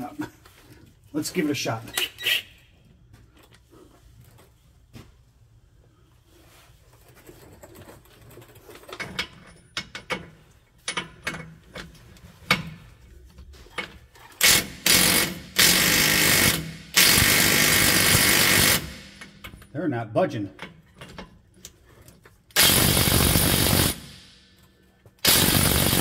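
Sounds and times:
impact wrench hammering: 0:14.4 - 0:19.6, 0:22.6 - 0:24.6, 0:25.2 - 0:26.0.

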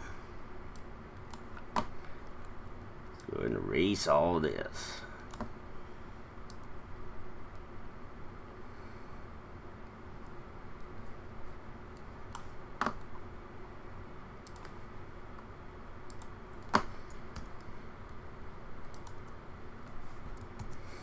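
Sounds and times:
faint background hum: 0:00.0 - 0:21.0
keyboard and mouse clicks: 0:05.2 - 0:05.5, 0:14.4 - 0:14.8, 0:16.0 - 0:17.7, 0:18.8 - 0:19.4, 0:20.3 - 0:20.8.

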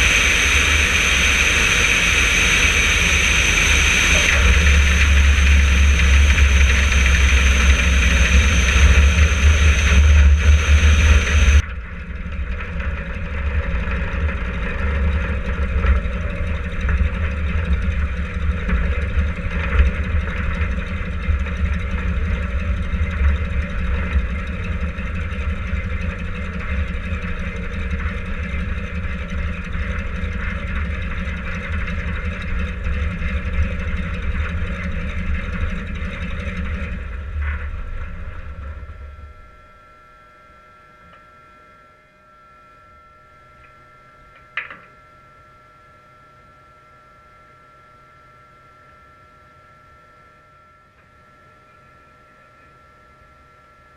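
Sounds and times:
rushing air: 0:00.0 - 0:11.6
radial aircraft engine: 0:00.0 - 0:53.9.

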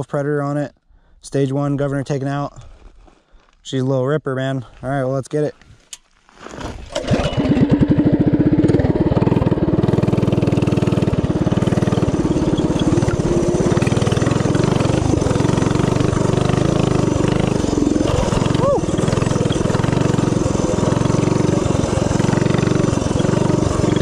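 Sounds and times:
small engine running hard: 0:06.9 - 0:24.0.

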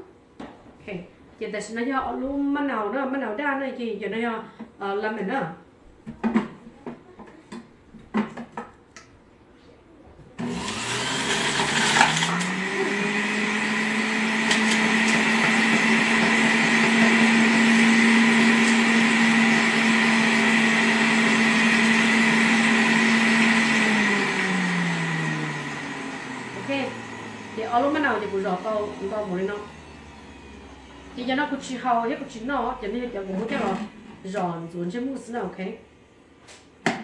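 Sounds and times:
juicer motor whine: 0:10.4 - 0:32.4, 0:33.1 - 0:34.4.

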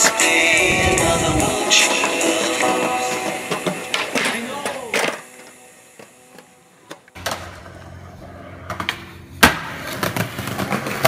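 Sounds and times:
skateboard clacks: 0:00.0 - 0:11.0
skateboard wheels rolling on concrete: 0:00.0 - 0:11.0
skateboard loud pop: 0:08.7 - 0:11.0.

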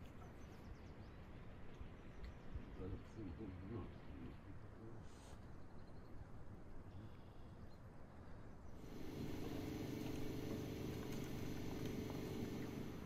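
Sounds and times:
faint low outdoor rumble: 0:00.0 - 0:13.0
samovar steam hissing: 0:08.8 - 0:13.0.

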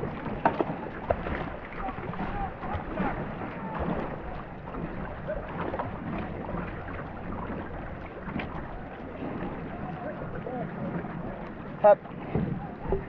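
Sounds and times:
paddles splashing in water: 0:00.0 - 0:13.0
wind rumble on microphone: 0:00.0 - 0:13.0.

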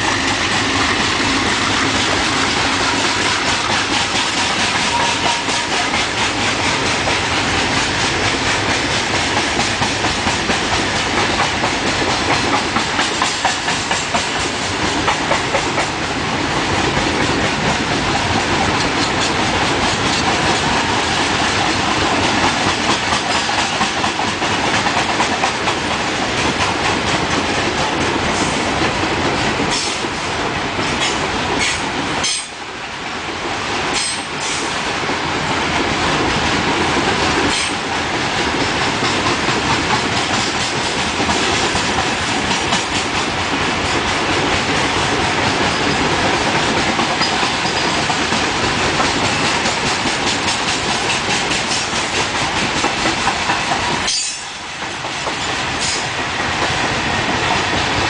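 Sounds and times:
freight train rolling past: 0:00.0 - 0:58.0
wheels clacking over rail joints: 0:00.0 - 0:58.0.

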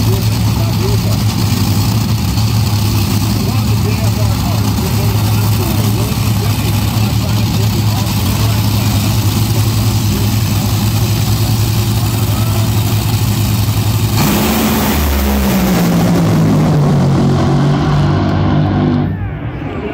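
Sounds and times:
dragster engines roaring: 0:00.0 - 0:19.9.

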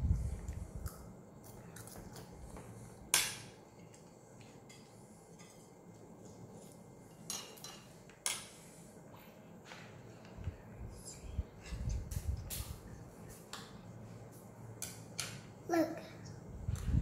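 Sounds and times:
cutlery clinking against plates: 0:07.1 - 0:08.5.

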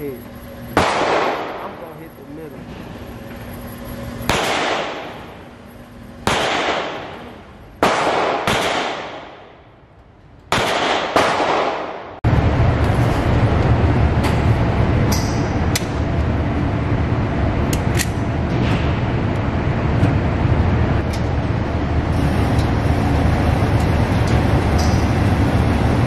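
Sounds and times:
loud low rumbling: 0:00.0 - 0:26.0
pistol shots with echo: 0:00.8 - 0:01.7, 0:04.3 - 0:05.2, 0:06.2 - 0:07.2, 0:07.8 - 0:09.6, 0:10.5 - 0:12.2.

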